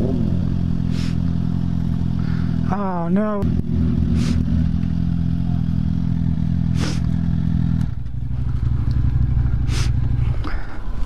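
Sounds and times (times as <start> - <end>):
motorcycle engine idling: 0.0 - 11.0
short hisses: 0.8 - 1.3, 4.2 - 4.4, 6.8 - 7.1, 9.7 - 10.0.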